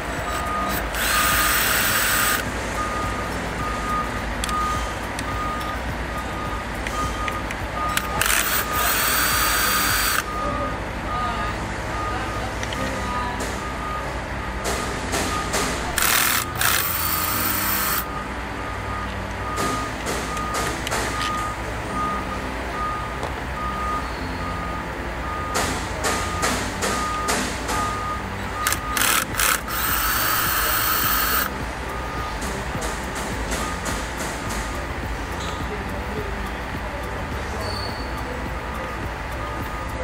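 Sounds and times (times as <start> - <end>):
steady beeping: 0.0 - 40.0
cordless drill spinning bolts: 0.7 - 2.4, 8.0 - 10.2, 16.0 - 18.0, 28.6 - 31.5.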